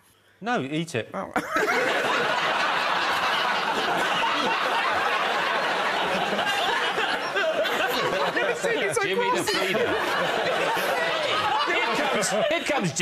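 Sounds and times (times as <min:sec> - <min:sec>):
audience laughing: 0:01.4 - 0:13.0.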